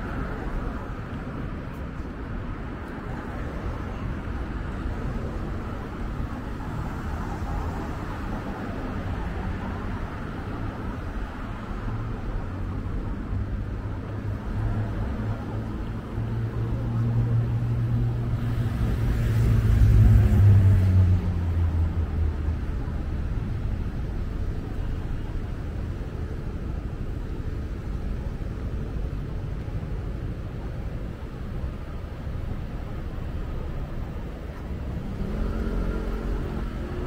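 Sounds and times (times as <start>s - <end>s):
street traffic noise: 0.0s - 37.0s
motor vehicle passing by: 18.5s - 22.0s, 35.0s - 37.0s.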